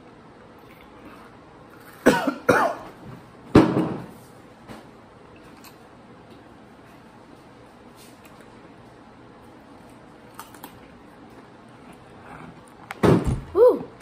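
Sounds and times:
person coughing: 2.0 - 2.9.

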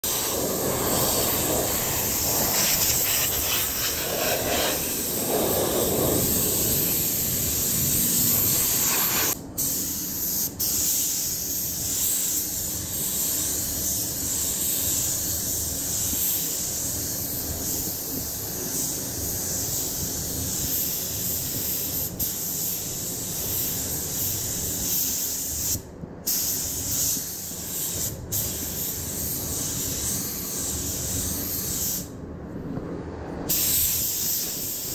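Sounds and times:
low air rushing: 0.0 - 9.4
paint spray gun hissing: 0.0 - 32.1, 33.5 - 34.9.

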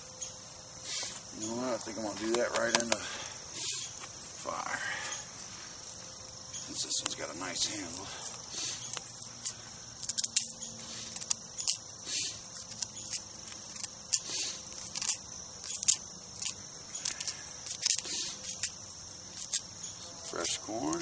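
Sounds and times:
crickets chirring: 0.0 - 21.0.

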